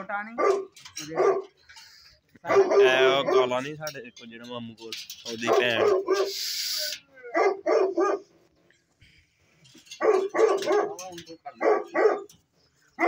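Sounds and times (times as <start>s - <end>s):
dogs barking: 0.3s - 1.6s, 2.4s - 3.7s, 5.4s - 6.5s, 7.2s - 8.4s, 9.9s - 13.0s.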